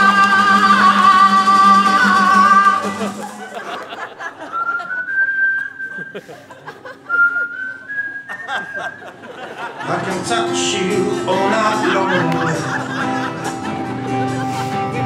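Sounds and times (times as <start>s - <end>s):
plucked guitar: 0.0s - 3.7s, 9.8s - 15.0s
person whistling a tune: 4.4s - 6.4s, 7.1s - 9.1s
voices with guitar music: 9.8s - 15.0s.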